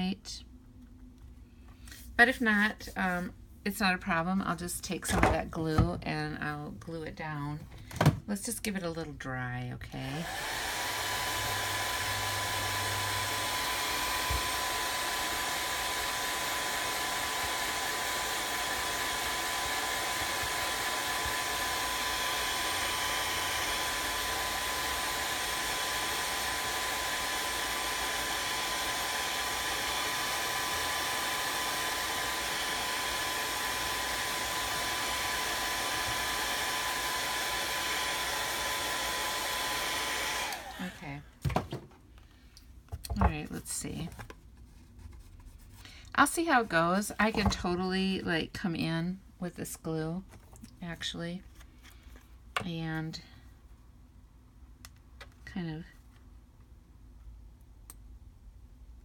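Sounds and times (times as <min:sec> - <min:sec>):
hot-air blower running: 0:10.0 - 0:41.7.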